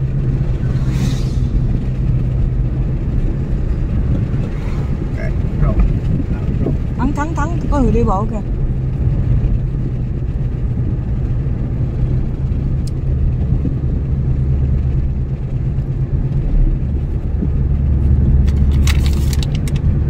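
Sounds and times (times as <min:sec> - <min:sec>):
car cabin road rumble: 0:00.0 - 0:20.0
sharp clicks or rattles: 0:18.4 - 0:20.0.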